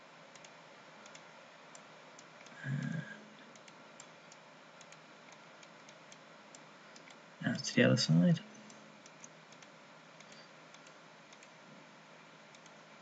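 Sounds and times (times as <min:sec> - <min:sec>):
low steady hiss: 0:00.0 - 0:13.0
faint computer mouse clicks: 0:00.3 - 0:01.3, 0:02.4 - 0:07.2, 0:08.6 - 0:11.6, 0:12.5 - 0:12.8.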